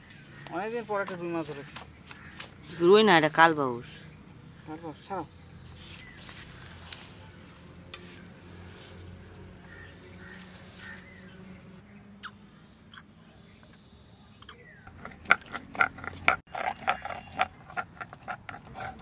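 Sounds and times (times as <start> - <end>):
stone grinding scraping and knocking: 14.9 - 19.0.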